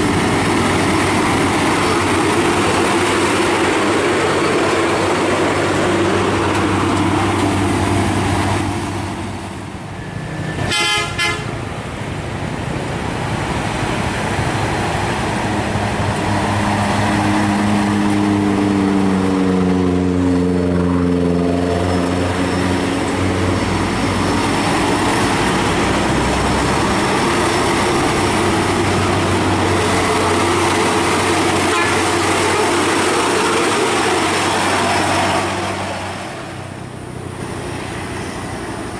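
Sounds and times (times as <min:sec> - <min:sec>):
truck diesel engine passing: 0:00.0 - 0:38.9
truck horn toot: 0:10.6 - 0:11.6, 0:31.6 - 0:32.3.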